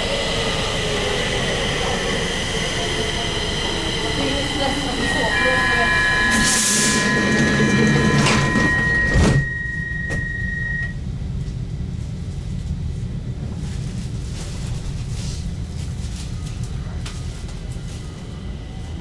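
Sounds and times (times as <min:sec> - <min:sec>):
train low hum: 0:00.0 - 0:19.0
high door warning tone: 0:01.9 - 0:11.0
train doors shutting with thud: 0:04.8 - 0:10.8.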